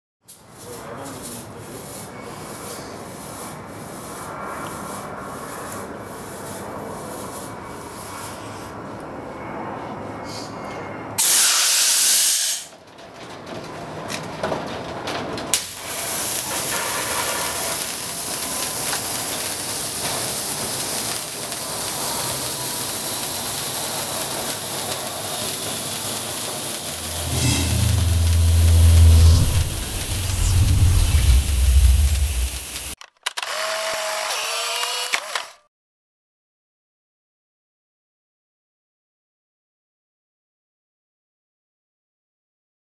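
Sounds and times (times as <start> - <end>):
metal roller shutter rattling: 12.8 - 15.6
fog machine hissing blast: 26.8 - 33.0
rumbling rubbing noise: 27.0 - 33.0.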